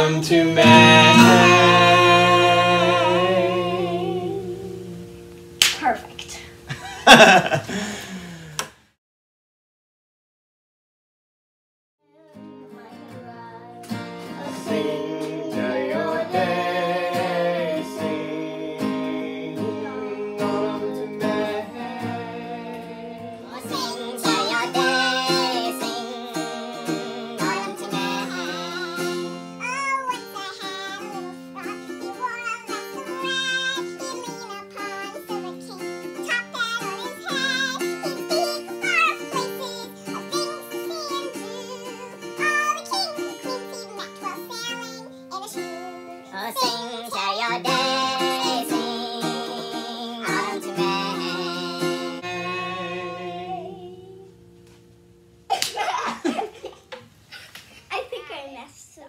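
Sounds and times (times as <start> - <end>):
girl singing: 0.0 - 5.1, 12.0 - 54.4
acoustic guitar strumming: 0.0 - 6.1, 12.4 - 55.5
sharp slap: 5.6 - 5.9.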